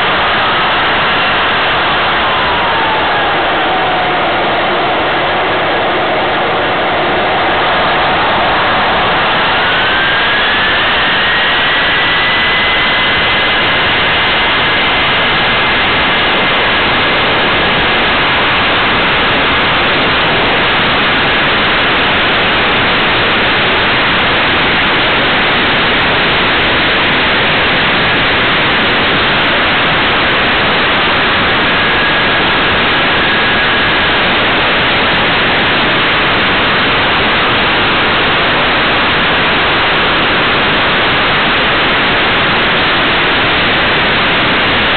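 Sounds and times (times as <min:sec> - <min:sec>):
rushing wind noise: 0:00.0 - 0:44.9
model airplane motor whine: 0:08.0 - 0:20.5, 0:29.0 - 0:35.7.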